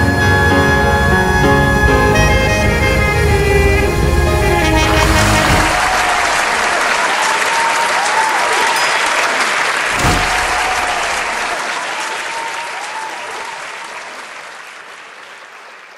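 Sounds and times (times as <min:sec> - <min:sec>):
large audience applauding: 0:04.7 - 0:15.9.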